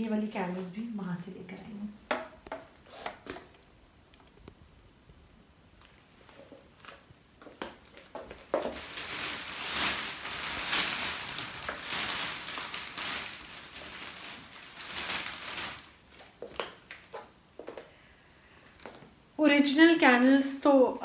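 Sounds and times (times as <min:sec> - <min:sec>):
wrapping crinkling and rustling: 0:05.7 - 0:17.3.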